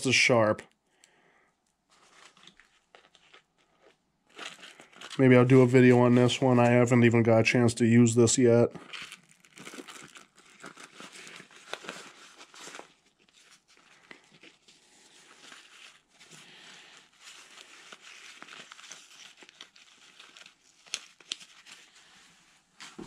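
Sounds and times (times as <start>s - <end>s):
fabric pouch rustling: 1.8s - 6.0s, 8.8s - 23.0s.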